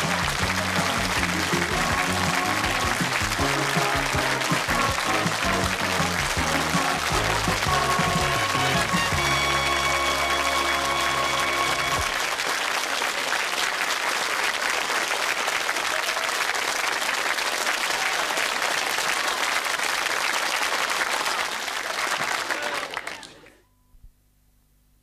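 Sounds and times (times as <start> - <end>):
theme music chord: 0.0 - 12.2
audience applauding: 0.0 - 23.6.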